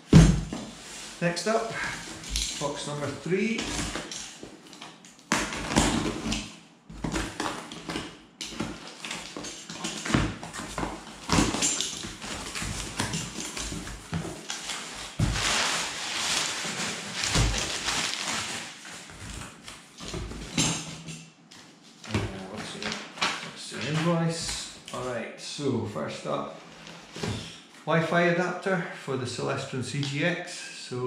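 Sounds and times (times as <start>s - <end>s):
paper packing rustling: 0.0s - 20.9s, 21.6s - 25.1s
cardboard flaps knocking: 0.1s - 0.8s.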